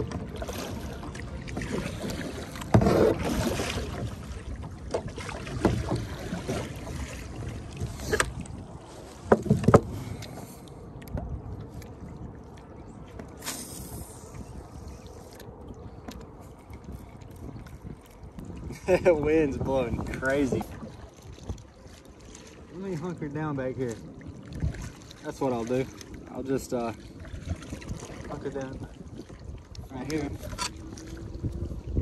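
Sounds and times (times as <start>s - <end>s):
wind buffeting: 0.0s - 21.9s, 23.1s - 32.0s
water sloshing against kayak hull: 0.0s - 32.0s
sharp knocks on kayak: 9.2s - 10.0s.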